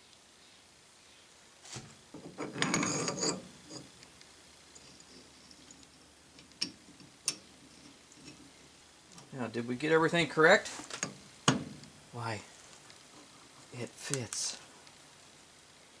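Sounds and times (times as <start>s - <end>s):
faint fiddling with metal parts: 1.6s - 15.0s
metallic rattling: 2.1s - 4.0s, 10.8s - 12.1s.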